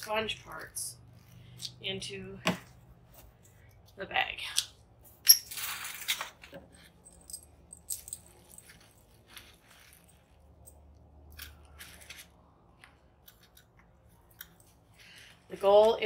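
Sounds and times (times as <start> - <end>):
plastic bag crinkling: 8.0 - 10.5.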